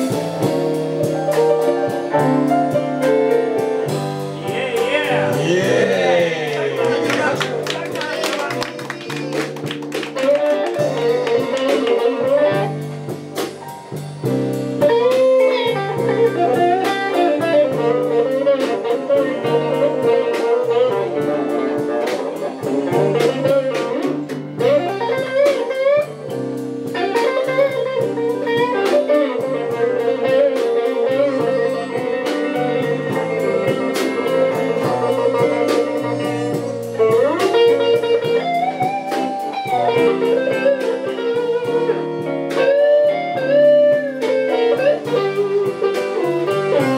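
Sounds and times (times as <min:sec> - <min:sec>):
bass guitar line: 0:00.0 - 0:46.9
lead electric guitar bending notes: 0:00.0 - 0:46.9.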